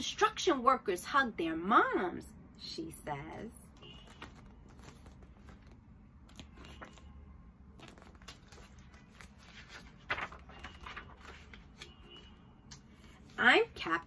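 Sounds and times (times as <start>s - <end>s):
flap of pages: 3.7s - 14.0s
paper pages rustling: 3.8s - 7.1s, 7.7s - 12.1s.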